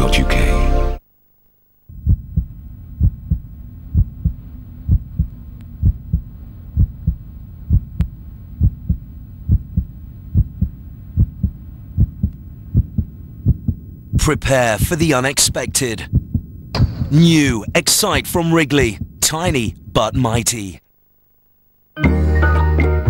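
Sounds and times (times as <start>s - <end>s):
low hum: 0.0s - 22.0s
heartbeat thumps: 1.9s - 20.2s.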